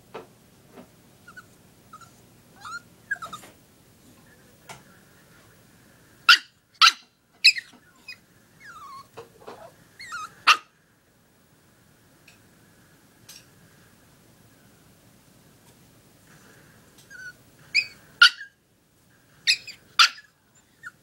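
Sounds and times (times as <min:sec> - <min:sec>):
puppy whining: 0:01.2 - 0:03.6, 0:06.3 - 0:10.7, 0:17.0 - 0:18.6, 0:19.4 - 0:21.0
puppy barking: 0:06.3 - 0:10.8, 0:17.2 - 0:18.6, 0:19.5 - 0:21.0.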